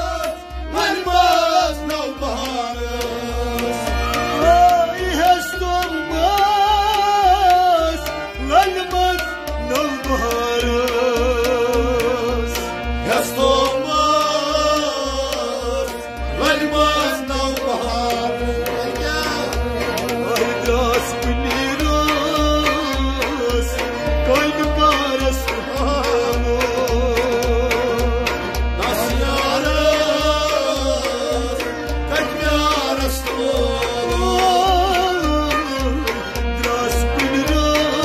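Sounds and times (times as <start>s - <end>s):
man singing: 0.0s - 38.0s
steady drum beat: 0.0s - 38.0s.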